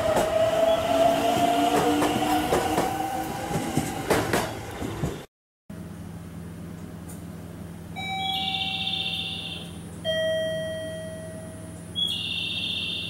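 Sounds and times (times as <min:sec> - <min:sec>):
two-note station chime: 0:08.0 - 0:11.8
warbling electronic chirps: 0:08.2 - 0:09.8.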